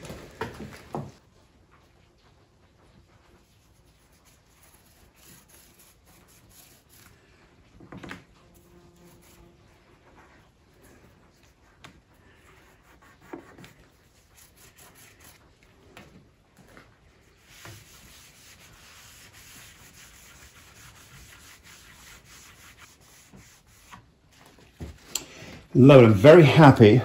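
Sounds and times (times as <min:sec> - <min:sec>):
cloth rubbing on wood: 0:03.3 - 0:07.1, 0:08.5 - 0:15.4, 0:17.2 - 0:25.0.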